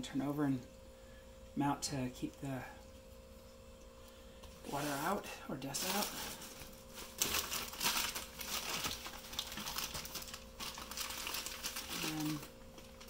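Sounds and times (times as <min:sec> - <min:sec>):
packing wrap crinkling: 0:04.5 - 0:13.0.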